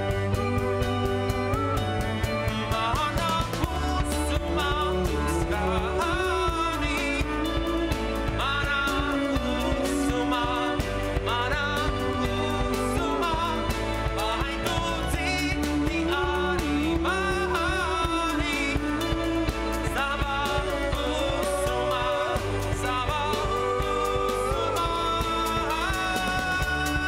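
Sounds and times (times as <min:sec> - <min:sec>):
bowed cello: 0:00.0 - 0:27.0
drum kit: 0:00.0 - 0:27.0
keyboard: 0:00.0 - 0:27.0
man singing: 0:00.0 - 0:27.0.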